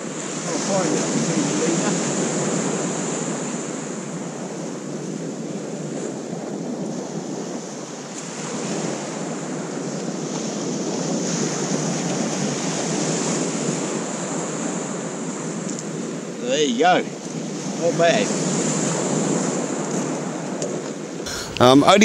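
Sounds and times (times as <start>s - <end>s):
wind on microphone: 0.0s - 16.4s.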